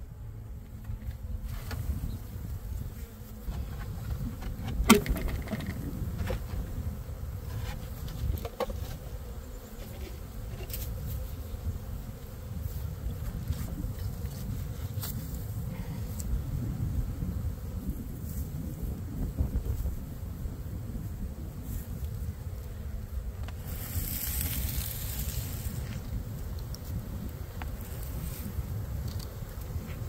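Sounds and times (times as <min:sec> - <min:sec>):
honeybees buzzing: 0:00.0 - 0:30.0
wooden hive parts knocking: 0:03.5 - 0:06.7.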